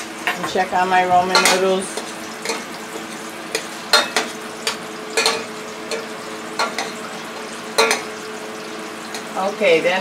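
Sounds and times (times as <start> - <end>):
fish sizzling in oil: 0.0 - 10.0
utensil clinking in saucepan: 1.3 - 2.7, 3.5 - 8.1.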